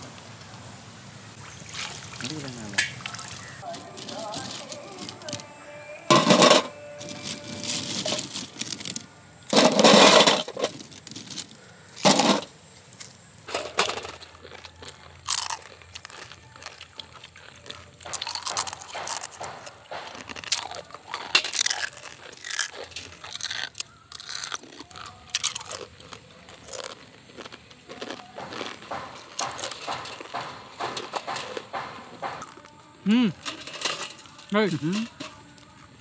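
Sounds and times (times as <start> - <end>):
crisp cookies being chewed: 14.0 - 33.4, 34.2 - 36.0.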